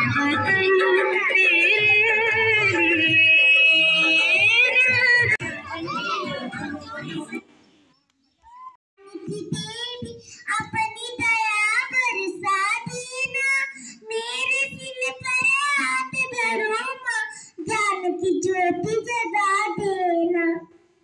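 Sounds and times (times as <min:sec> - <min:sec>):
child singing: 0:00.0 - 0:07.4, 0:09.0 - 0:17.1.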